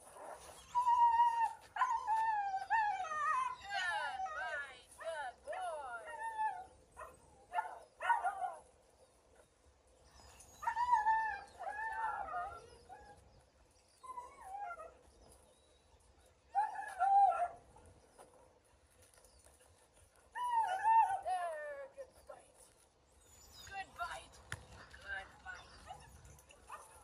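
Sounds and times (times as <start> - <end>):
young dog barking and yelping: 6.0 - 8.7.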